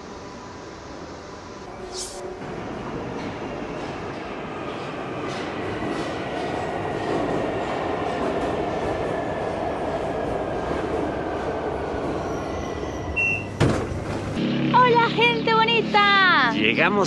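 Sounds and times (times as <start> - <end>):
train wheels rumbling on rail: 2.4 - 14.4.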